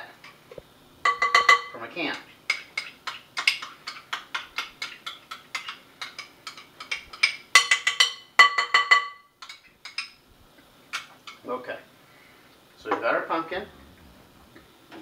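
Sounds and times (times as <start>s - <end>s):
metal spoon clinking on glass bowl: 1.1s - 1.8s, 2.5s - 10.2s.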